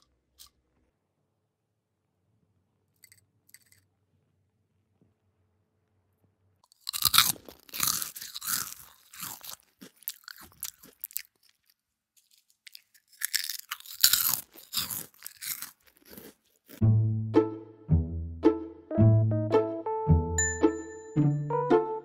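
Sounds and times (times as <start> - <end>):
crunching cereal being chewed: 0.0 - 0.9, 3.0 - 3.8, 6.6 - 16.8.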